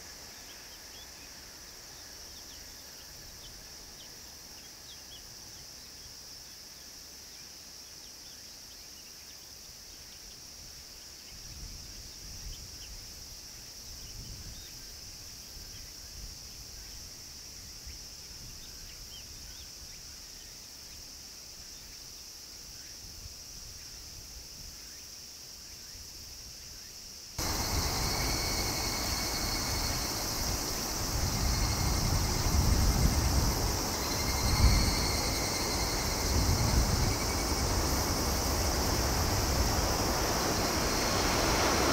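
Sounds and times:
cicadas buzzing: 0.0 - 41.9.

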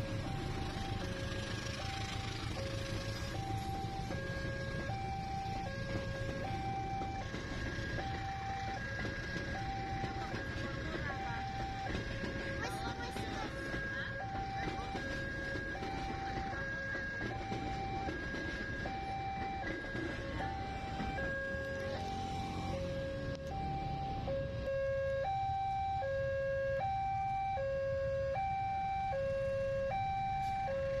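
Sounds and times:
train rumbling past: 0.0 - 24.7
level crossing two-tone alarm: 0.0 - 31.0.

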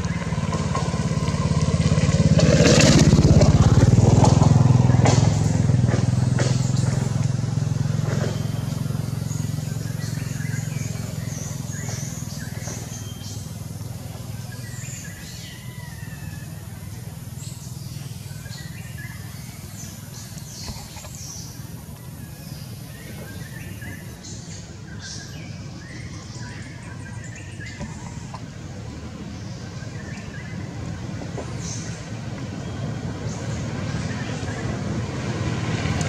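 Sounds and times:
low engine drone: 0.0 - 36.0
high chirping calls: 8.0 - 28.4.

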